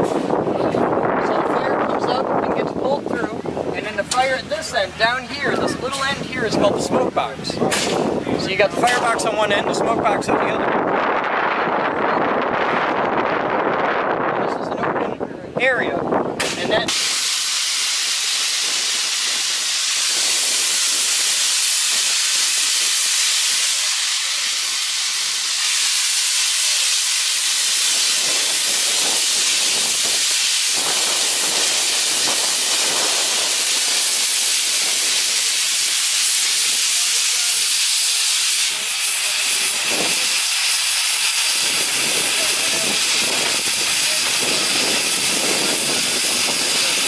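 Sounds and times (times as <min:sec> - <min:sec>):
steam hissing from engine: 0:16.4 - 0:47.0.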